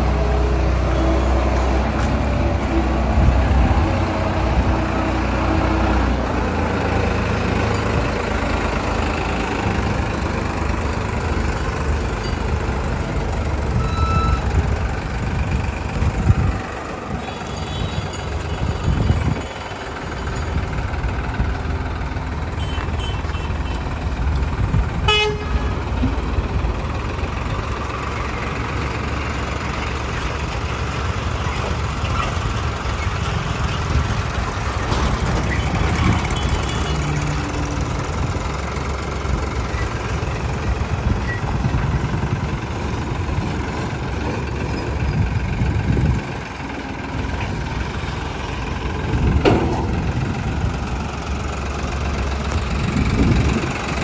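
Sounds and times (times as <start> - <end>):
tractor diesel engine running: 0.0 - 54.0
vehicle horn toot: 17.3 - 18.1, 25.1 - 25.7.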